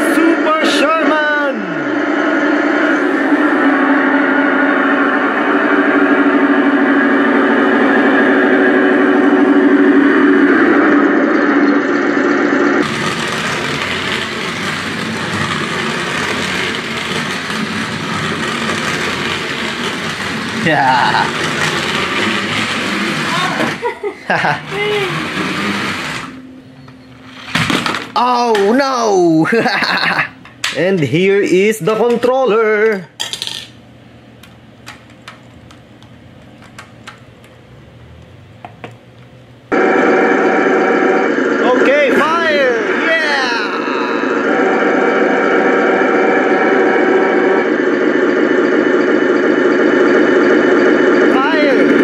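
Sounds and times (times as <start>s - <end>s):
toy truck motor whirring: 12.8s - 23.9s, 24.6s - 26.4s.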